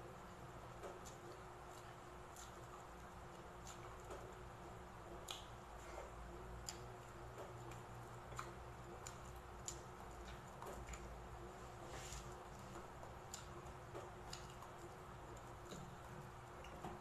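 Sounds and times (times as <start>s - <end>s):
wet chewing: 6.6s - 11.2s, 13.3s - 17.0s.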